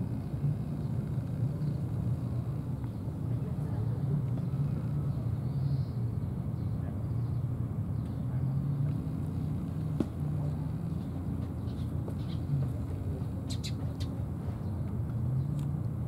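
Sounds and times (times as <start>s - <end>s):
outdoor background rumble: 0.0s - 16.0s.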